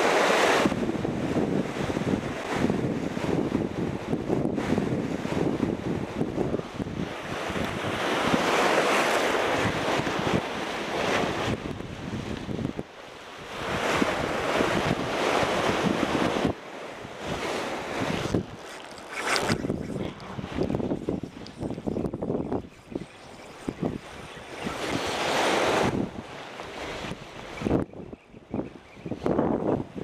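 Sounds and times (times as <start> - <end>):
surf washing against rocks: 0.0 - 27.8
wind on microphone: 0.0 - 30.0.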